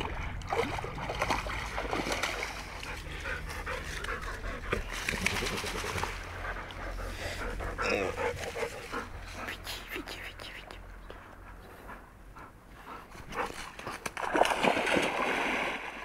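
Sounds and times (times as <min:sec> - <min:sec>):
dog splashing in water: 0:00.0 - 0:03.2, 0:04.7 - 0:06.4, 0:13.7 - 0:16.0.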